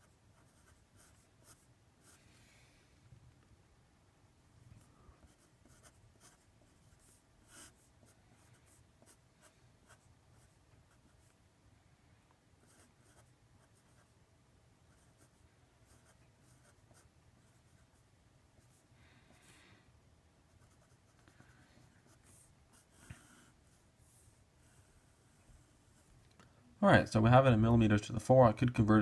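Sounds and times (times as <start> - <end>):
marker scratching on paper: 0.0 - 2.2, 5.2 - 11.4, 12.6 - 14.1, 14.9 - 18.0, 20.5 - 26.1.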